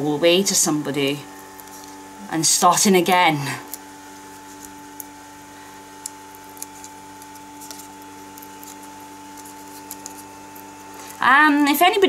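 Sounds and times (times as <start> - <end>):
low electrical hum: 0.0 - 12.0
fingers rustling paper backing: 0.2 - 12.0.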